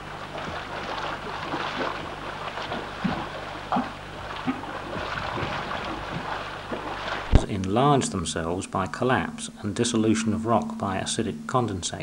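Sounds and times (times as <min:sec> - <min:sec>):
gurgling pops: 0:00.0 - 0:07.5.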